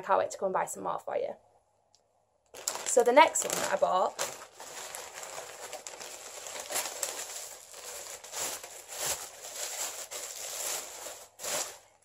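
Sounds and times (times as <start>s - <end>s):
tissue paper crinkling: 2.5s - 12.0s.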